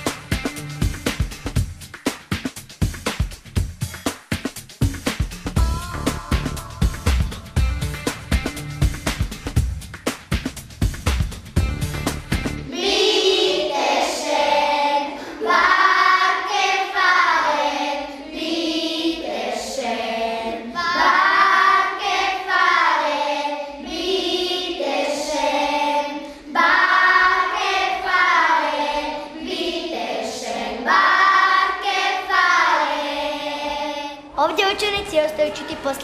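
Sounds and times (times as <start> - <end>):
children's choir singing: 12.7 - 36.0.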